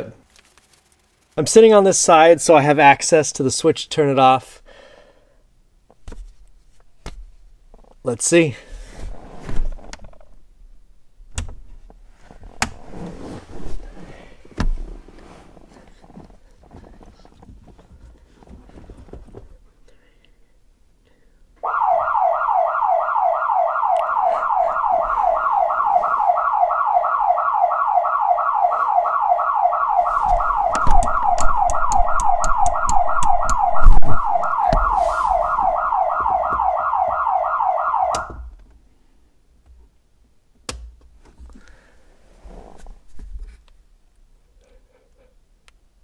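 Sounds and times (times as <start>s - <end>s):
muffled warbling alarm siren: 21.6s - 38.5s
knocks and thumps: 30.3s - 35.0s.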